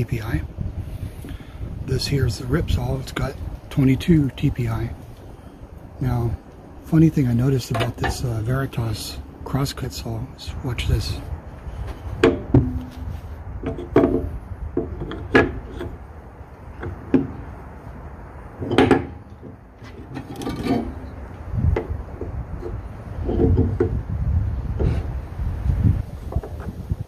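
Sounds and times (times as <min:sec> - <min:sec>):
wooden knocks and clatter: 0:11.9 - 0:16.0, 0:16.7 - 0:17.4, 0:18.6 - 0:24.0, 0:26.2 - 0:26.9.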